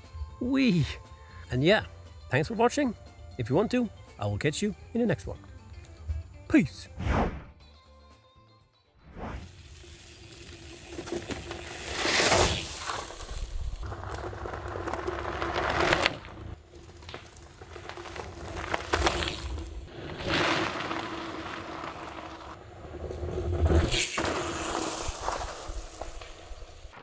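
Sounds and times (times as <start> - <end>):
bike tyres crunching over leaves: 9.6 - 27.0.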